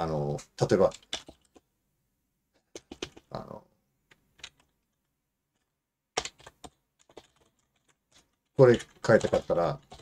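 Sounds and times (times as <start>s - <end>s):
keyboard keystrokes: 0.8s - 1.6s, 2.7s - 3.3s, 5.6s - 10.0s.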